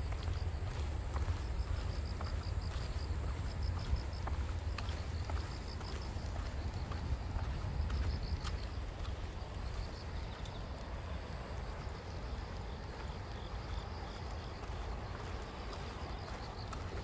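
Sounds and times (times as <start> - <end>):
footsteps on asphalt: 0.0 - 17.0.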